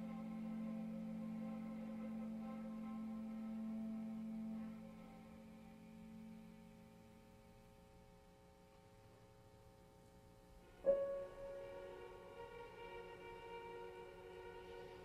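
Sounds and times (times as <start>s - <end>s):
grand piano notes ringing: 10.7s - 15.0s.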